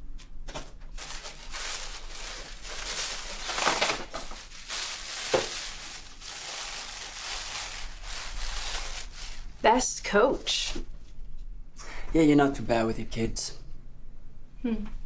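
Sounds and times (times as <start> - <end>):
sharp paper crackle: 0.5 - 9.6
tissue paper rustling: 0.9 - 9.8.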